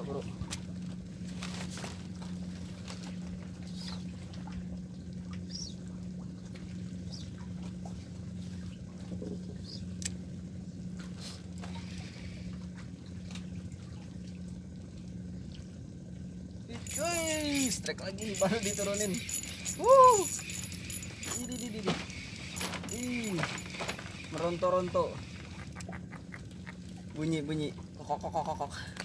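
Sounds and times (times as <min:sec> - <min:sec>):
low engine hum: 0:00.0 - 0:29.0
fishing reel squeaks: 0:16.7 - 0:25.6
fishing reel clicks: 0:16.8 - 0:25.4.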